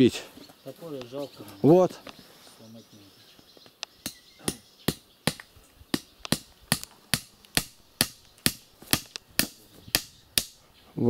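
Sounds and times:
hammer driving nails into wood: 0:04.5 - 0:10.6.

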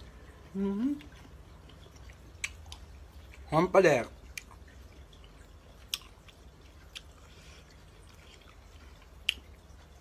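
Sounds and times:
low steady hum: 0:00.0 - 0:10.0
person chewing food: 0:00.0 - 0:10.0.

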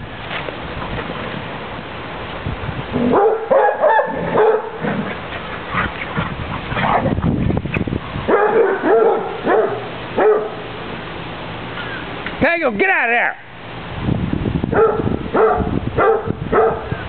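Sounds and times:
dogs barking: 0:03.0 - 0:07.4, 0:08.2 - 0:10.7, 0:14.7 - 0:17.0.

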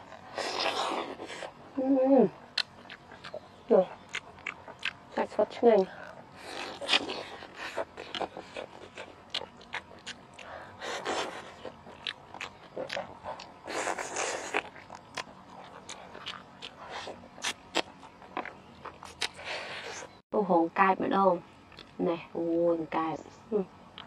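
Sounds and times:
sucking meat off bone: 0:00.1 - 0:01.6, 0:05.8 - 0:20.2
chewing and lip smacking: 0:02.3 - 0:20.2, 0:21.7 - 0:22.0
sharp mouth clicks: 0:02.5 - 0:03.4, 0:04.1 - 0:05.0.

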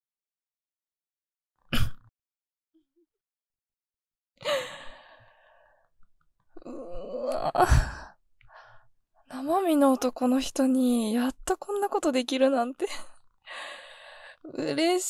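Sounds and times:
woman sighing breathily: 0:04.4 - 0:05.4, 0:06.6 - 0:08.7.

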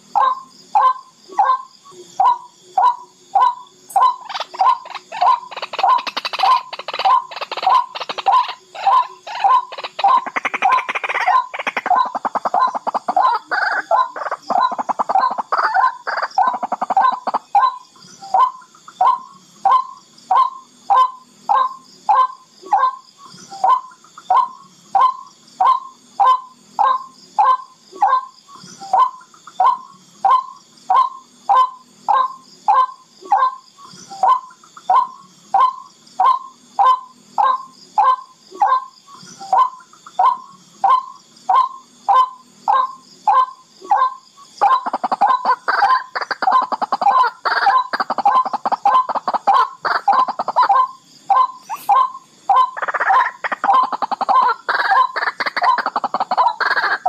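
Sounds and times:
rail bird calling: 0:00.2 - 0:57.0
fast bird chatter: 0:03.9 - 0:17.7, 0:44.6 - 0:57.0.

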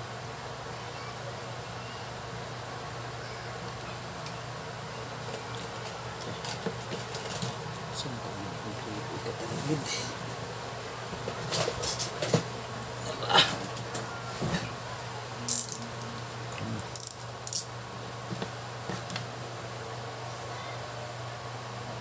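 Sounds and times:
steady low hum: 0:00.0 - 0:22.0
tools clicking and rattling: 0:15.5 - 0:16.0, 0:16.9 - 0:17.7.

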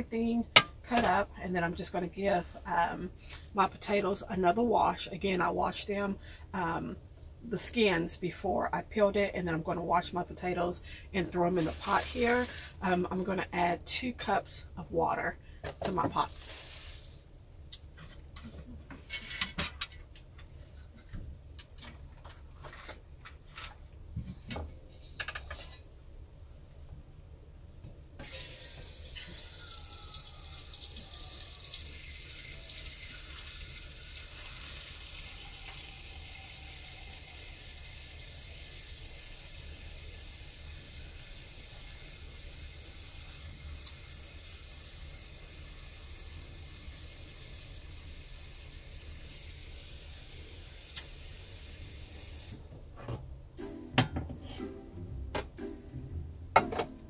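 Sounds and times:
faucet running into pot: 0:28.2 - 0:52.6.

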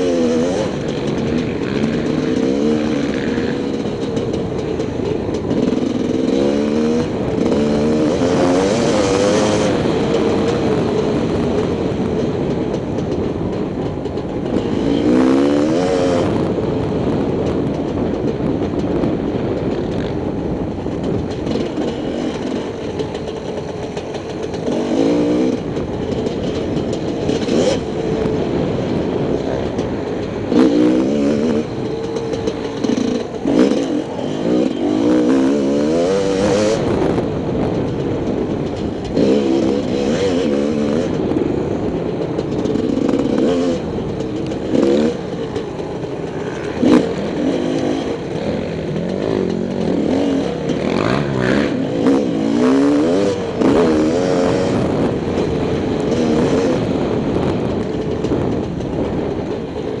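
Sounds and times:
trail bike engine revving: 0:00.0 - 1:00.0.

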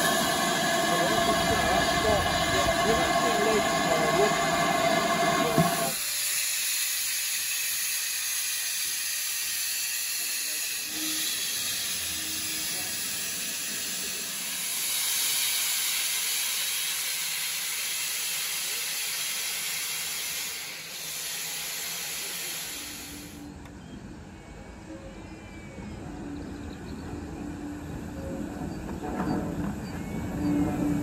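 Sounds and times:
steam hissing from locomotive: 0:00.0 - 0:23.5
low rumble of moving train: 0:00.0 - 0:31.0.

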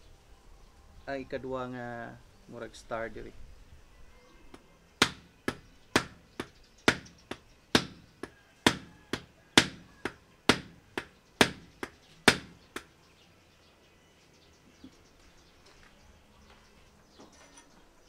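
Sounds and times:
rubber mallet striking metal tube: 0:05.0 - 0:08.0, 0:08.7 - 0:12.6.

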